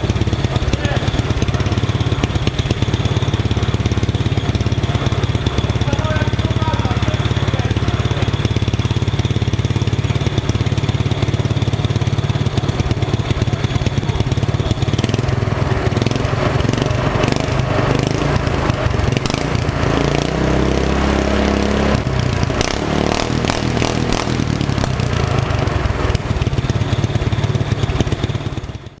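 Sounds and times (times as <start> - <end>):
small petrol engine chugging: 0.0 - 29.0.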